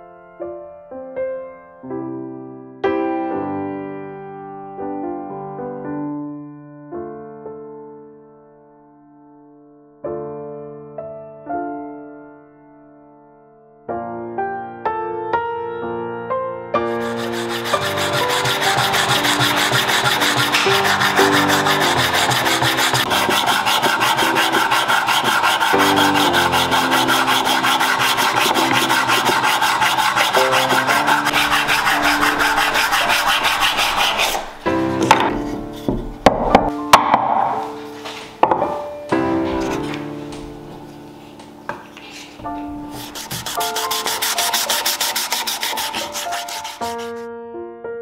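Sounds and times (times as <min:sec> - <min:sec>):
piano music: 0:00.0 - 0:48.0
sandpaper rubbing on wood: 0:16.9 - 0:36.0, 0:42.9 - 0:47.2.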